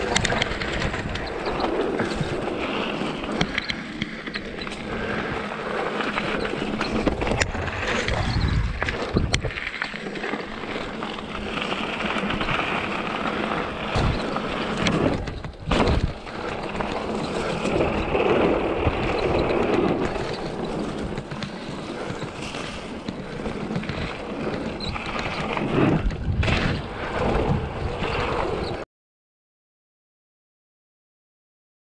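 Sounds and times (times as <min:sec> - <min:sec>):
bike rattling: 0:00.0 - 0:28.8
bike tyres rolling over dirt: 0:00.0 - 0:28.8
wind buffeting microphone: 0:04.3 - 0:09.7, 0:11.3 - 0:28.8
bike knocking over bumps: 0:11.6 - 0:27.6.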